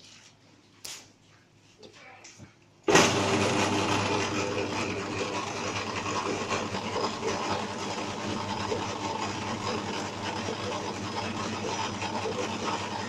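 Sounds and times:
machine motor humming: 2.9 - 13.0.

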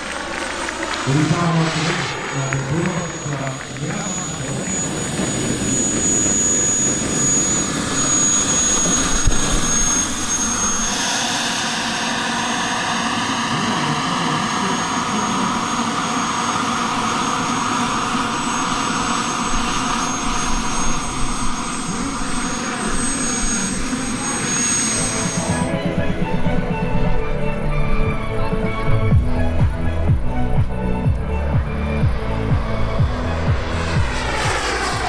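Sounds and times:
model jet turbine whining: 0.0 - 35.0.

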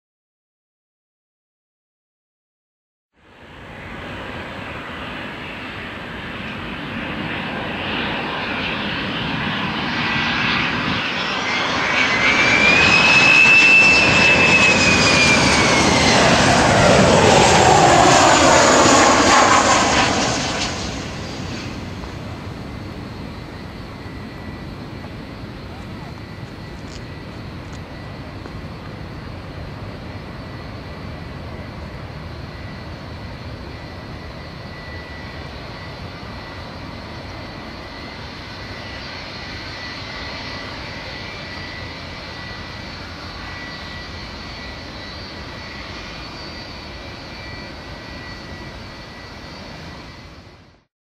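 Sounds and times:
jet engine roar: 3.2 - 50.9.

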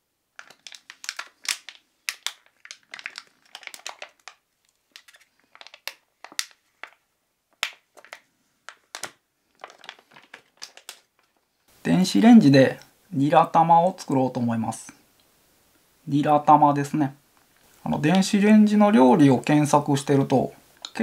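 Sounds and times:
plastic wrapper crinkling: 0.3 - 11.5.

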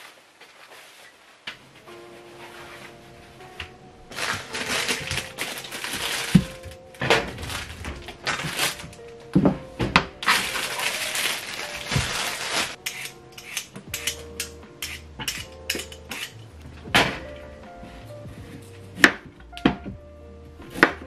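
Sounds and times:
plastic bag rustling: 0.0 - 3.4, 4.0 - 9.3, 10.1 - 12.8
soft background music: 1.5 - 21.0
clicks and taps of utensils: 12.8 - 16.3.

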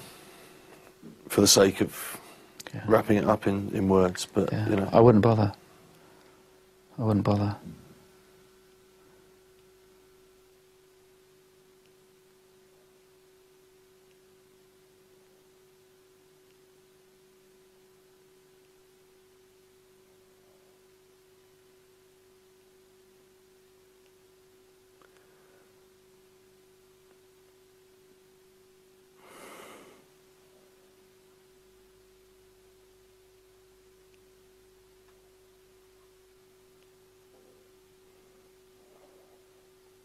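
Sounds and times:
faint steady hum: 0.0 - 40.0
person breathing out: 29.2 - 30.1.

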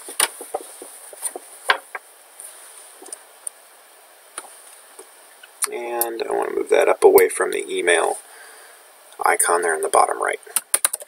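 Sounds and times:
faint steady high hiss: 0.0 - 11.0
keyboard and mouse clicks: 10.6 - 11.0.

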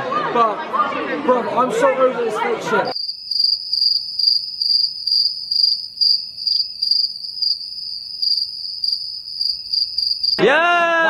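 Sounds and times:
crickets chirping: 2.9 - 10.4.

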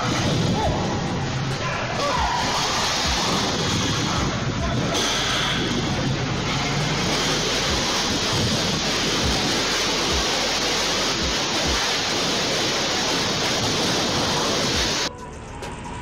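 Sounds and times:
wind buffeting microphone: 0.0 - 10.4
wind rushing through building: 0.0 - 15.1.

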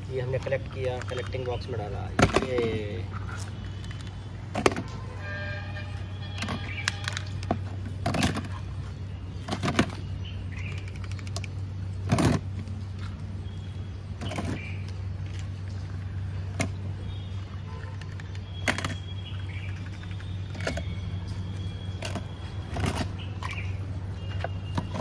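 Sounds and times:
toy vehicles knocking plastic bottle: 0.2 - 2.8.

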